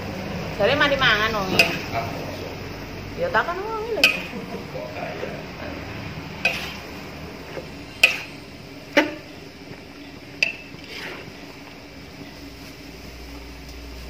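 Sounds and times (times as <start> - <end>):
metal spatula clanking on wok: 1.4 - 2.2, 4.0 - 4.6, 6.4 - 6.8, 8.0 - 8.4, 10.4 - 10.7.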